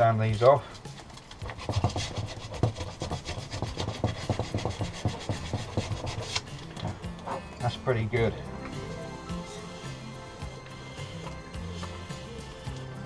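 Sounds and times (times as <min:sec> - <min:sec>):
sandpaper scratching on metal: 0:01.4 - 0:06.6.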